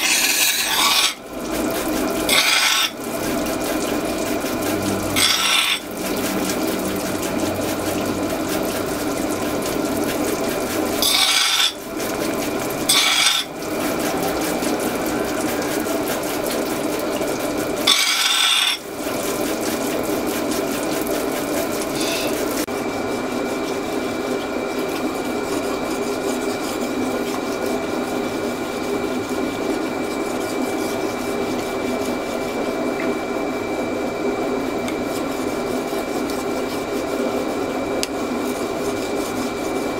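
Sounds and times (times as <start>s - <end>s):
knife blade rasping on wheel: 0.0s - 1.3s, 2.3s - 3.0s, 4.8s - 6.5s, 11.0s - 11.9s, 12.8s - 13.6s, 17.8s - 18.9s, 21.9s - 22.6s
grinding wheel humming: 0.0s - 27.1s.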